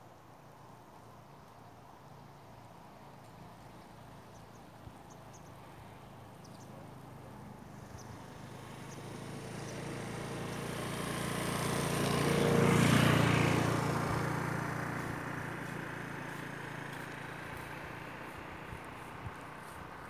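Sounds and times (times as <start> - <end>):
vehicle passing by: 5.5 - 20.0.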